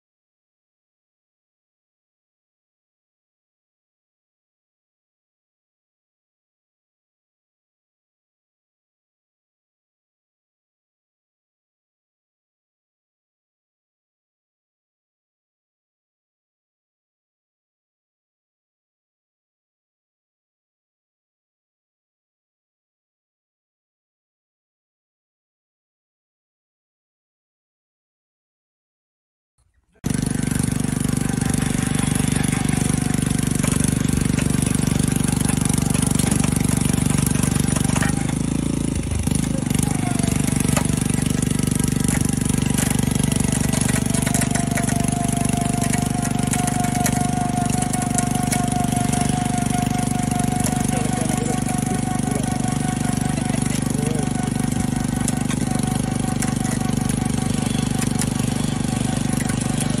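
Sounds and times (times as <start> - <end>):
drilling rig motor drone: 30.0 - 60.0.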